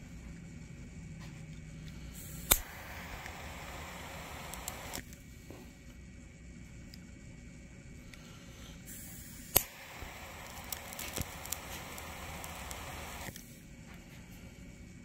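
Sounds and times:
gas torch flame hissing: 2.0s - 5.1s, 8.2s - 13.5s
crackles and pops in flame: 2.2s - 5.2s, 9.0s - 13.4s
igniter click: 2.4s - 5.0s, 9.4s - 13.4s.

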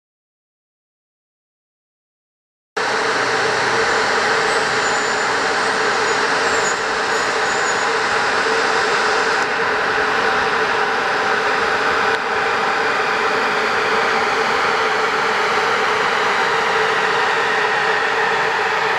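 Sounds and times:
electric locomotive humming: 2.8s - 18.9s.

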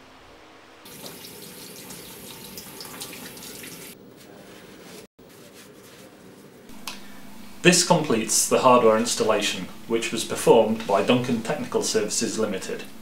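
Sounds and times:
tap water running into sink: 0.9s - 4.0s
faint room noise: 3.9s - 13.0s.

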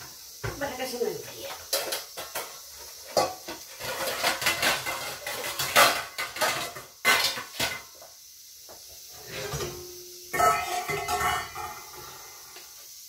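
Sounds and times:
spoon scraping and clinking on a pan: 1.4s - 8.0s, 9.2s - 12.3s.

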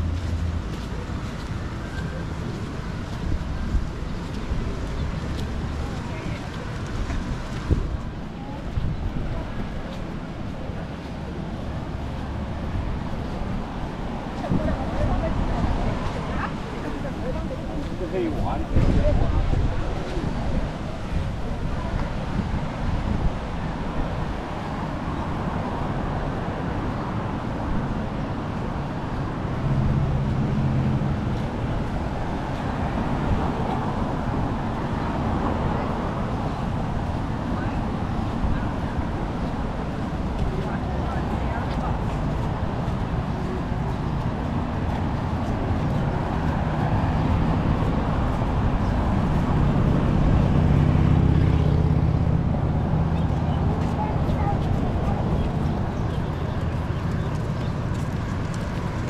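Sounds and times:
vehicle engine hum: 0.0s - 8.6s, 25.2s - 59.0s
street traffic: 0.0s - 59.0s
wind on microphone: 0.0s - 59.0s.

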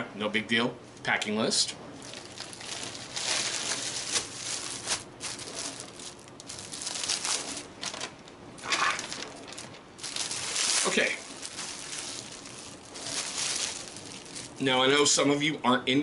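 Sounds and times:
plastic packaging crinkling: 2.0s - 14.8s.

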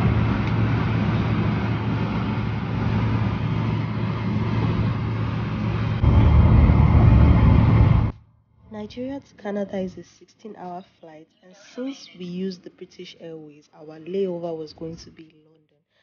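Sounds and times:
vehicle engine rumble: 0.0s - 9.2s.

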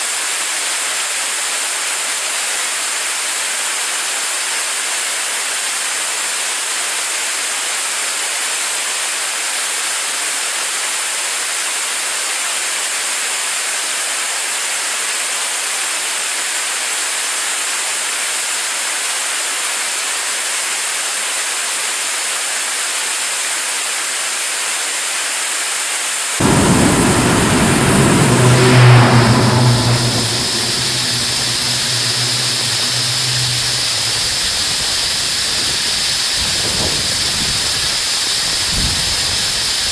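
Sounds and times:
rocket engine exhaust roar: 26.4s - 36.8s.

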